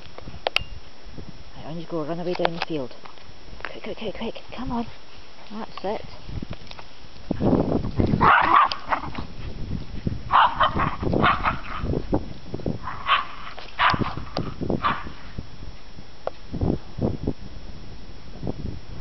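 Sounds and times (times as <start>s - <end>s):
dogs barking and yipping: 8.2s - 9.3s, 10.3s - 11.9s, 12.8s - 15.2s.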